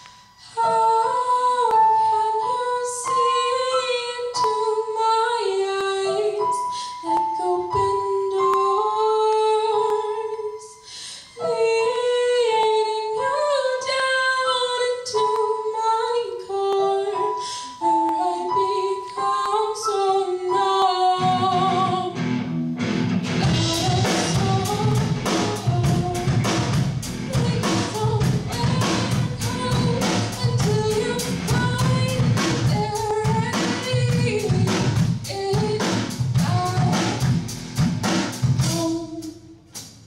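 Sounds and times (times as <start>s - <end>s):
woman singing: 0.4s - 22.2s, 23.4s - 37.4s, 38.5s - 39.7s
electric guitars: 21.2s - 35.2s
bass guitar: 21.3s - 39.2s
drum kit beat: 22.8s - 40.0s.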